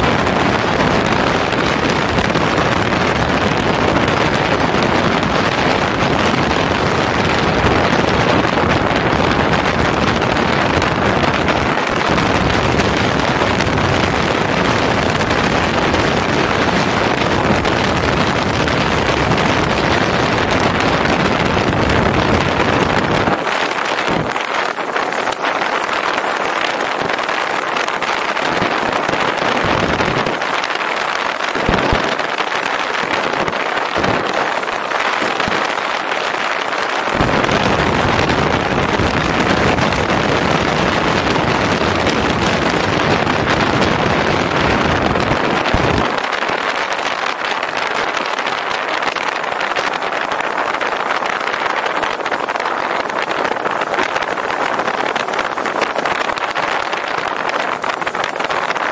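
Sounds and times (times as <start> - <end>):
motorcycle road noise: 0.0 - 30.5
wind rushing over microphone: 0.0 - 58.9.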